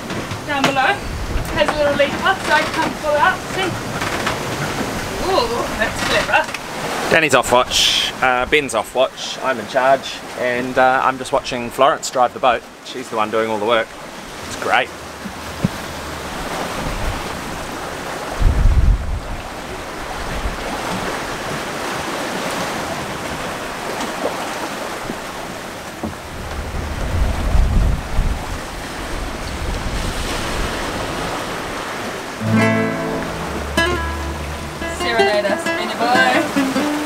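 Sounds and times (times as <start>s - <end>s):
wind buffeting microphone: 0.0s - 7.0s, 14.0s - 22.1s, 25.0s - 32.4s
waves and rushing water: 0.0s - 37.0s
acoustic guitar strumming: 32.4s - 37.0s.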